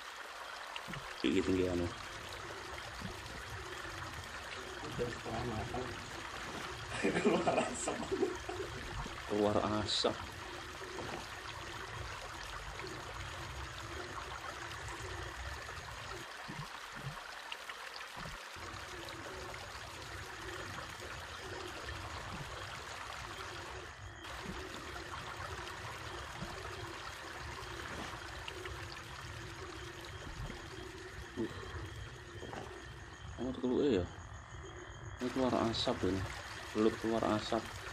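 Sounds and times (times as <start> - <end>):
flowing water rushing: 0.0 - 33.9, 35.2 - 37.9.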